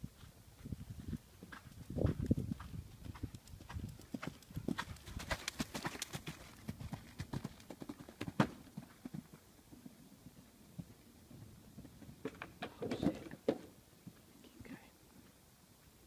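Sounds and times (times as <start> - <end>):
pony hoofbeats on sand: 0.1 - 11.0.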